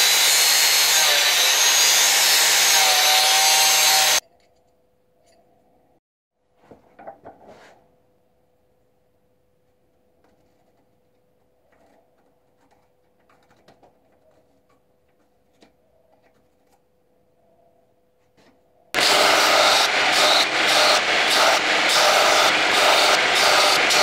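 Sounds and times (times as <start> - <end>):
belt grinder sanding: 0.0 - 4.2, 19.0 - 24.0.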